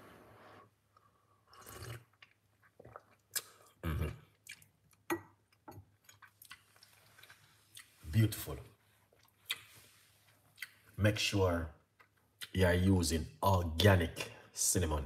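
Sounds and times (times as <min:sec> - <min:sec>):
person sipping hot drink: 0:00.2 - 0:04.6
swallowing: 0:01.5 - 0:05.3.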